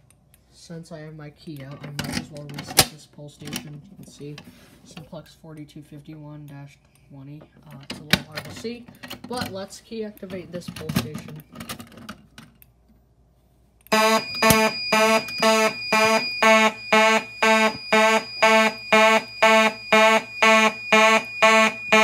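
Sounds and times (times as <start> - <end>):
fire alarm horns buzzing: 13.9 - 22.0.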